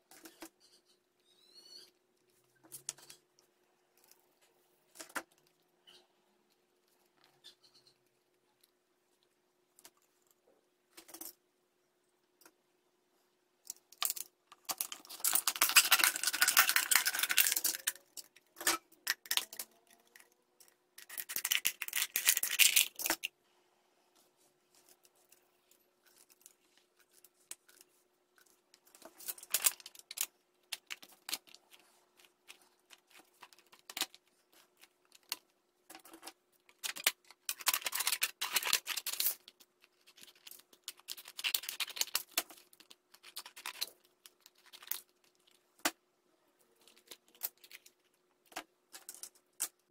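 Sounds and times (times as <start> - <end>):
aluminium foil rustling: 14.0 - 20.0, 28.9 - 45.6.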